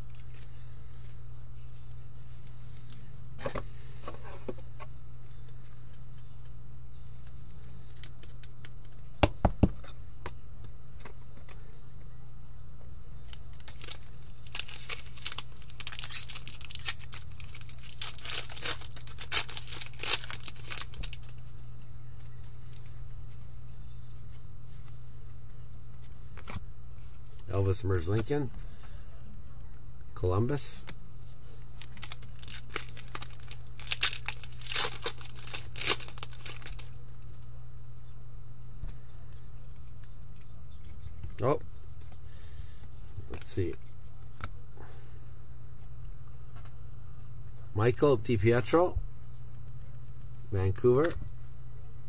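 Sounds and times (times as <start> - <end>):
steady low hum: 0.0 - 52.0
foil wrapper tearing and crinkling: 13.5 - 21.3, 31.8 - 36.9.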